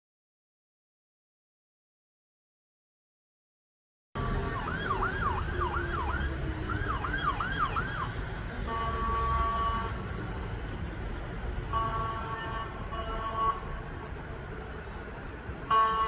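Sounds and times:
road traffic rumble: 0:04.2 - 0:16.0
siren yelping: 0:04.4 - 0:08.1.

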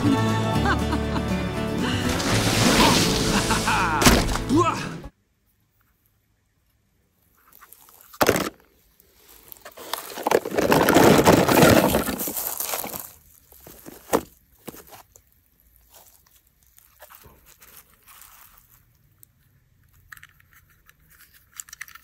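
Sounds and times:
rustling and scraping on leaves: 0:02.0 - 0:04.4, 0:09.1 - 0:19.0.

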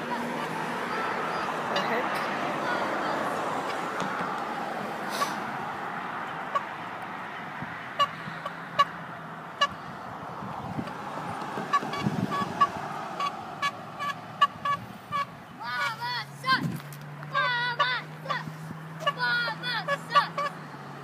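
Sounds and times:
passing road traffic: 0:00.0 - 0:21.0
bicycle horn tooting: 0:11.7 - 0:16.0, 0:19.0 - 0:20.6.

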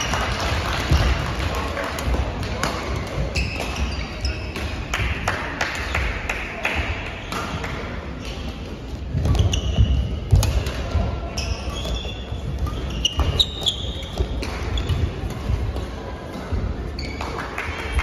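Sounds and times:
court shoes squeaking: 0:02.0 - 0:05.0, 0:07.0 - 0:18.0
racket hitting shuttlecock: 0:02.0 - 0:05.8, 0:06.6 - 0:17.5.

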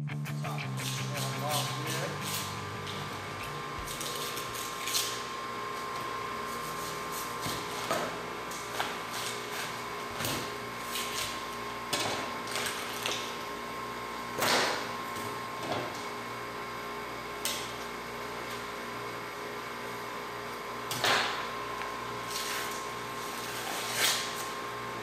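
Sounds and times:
steady hum: 0:00.0 - 0:11.8
knife cutting and scraping fish: 0:03.8 - 0:05.2, 0:22.2 - 0:24.6.

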